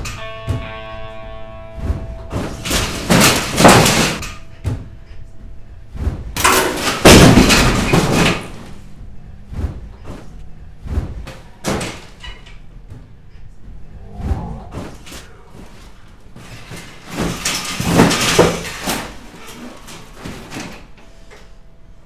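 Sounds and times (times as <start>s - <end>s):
ceiling panels crashing down: 1.8s - 5.2s, 6.0s - 8.9s, 9.5s - 13.1s, 14.4s - 20.9s
falling pieces banging and knocking: 2.3s - 4.9s, 6.4s - 8.7s, 16.4s - 20.9s.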